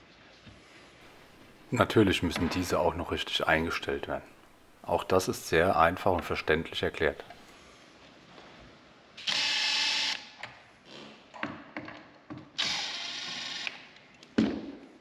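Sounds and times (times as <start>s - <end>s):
cordless drill driving screws: 9.2s - 10.2s, 12.6s - 13.8s.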